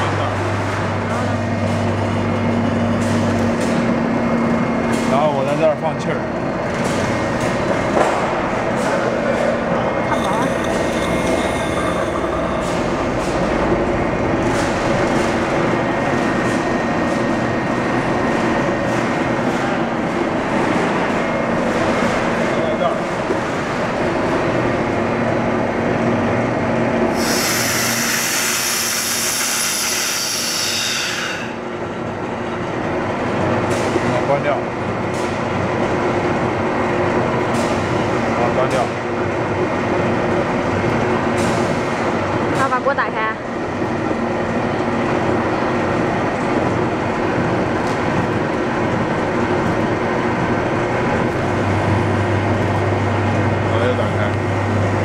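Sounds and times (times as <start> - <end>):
mixer machine whirring: 0.0 - 42.8, 43.4 - 55.0
air hissing through valve: 27.1 - 31.6.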